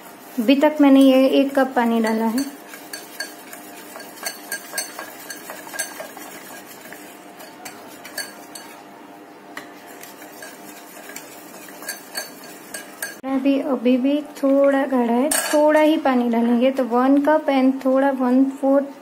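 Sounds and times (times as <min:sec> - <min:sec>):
whisk beating batter: 0:00.0 - 0:08.9, 0:09.6 - 0:13.2
whisk wires clicking on bowl: 0:00.4 - 0:08.8, 0:09.6 - 0:13.2.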